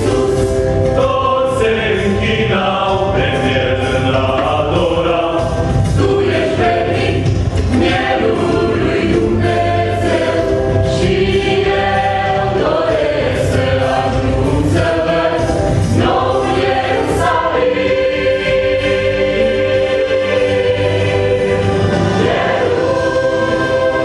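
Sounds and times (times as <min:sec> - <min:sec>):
mixed choir singing: 0:00.0 - 0:24.0.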